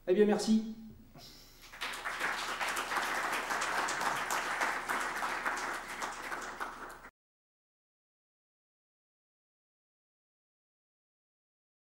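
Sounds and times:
audience clapping: 1.6 - 7.1.

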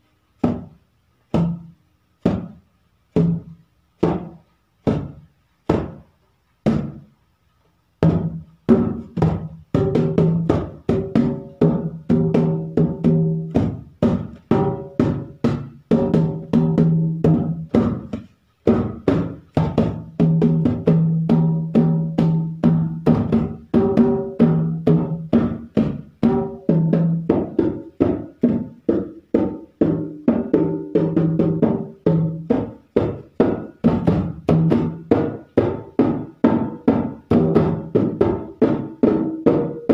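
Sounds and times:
hand drum played in fast rhythm: 8.0 - 39.9.

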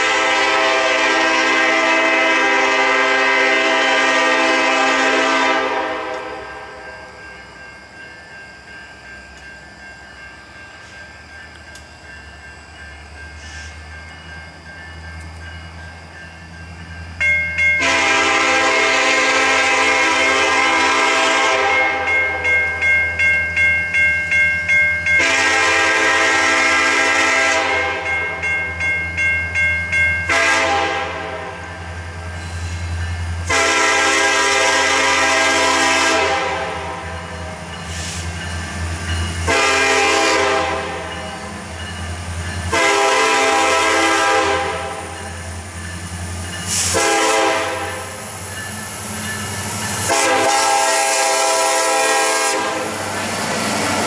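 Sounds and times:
locomotive air horn blasts: 0.0 - 6.7, 17.8 - 22.1, 25.2 - 28.1, 30.3 - 31.6, 33.4 - 37.1, 39.4 - 41.0, 42.7 - 45.0, 46.7 - 48.2, 50.0 - 53.0
crossing warning bell ringing: 0.0 - 54.0.

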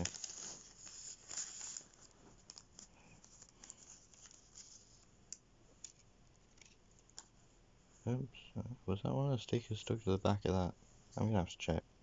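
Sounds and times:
paper rustling: 0.0 - 5.1, 5.8 - 7.3.

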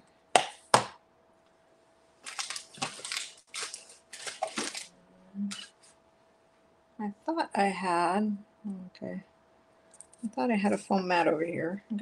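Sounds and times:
rustling and crinkling: 2.2 - 6.0.

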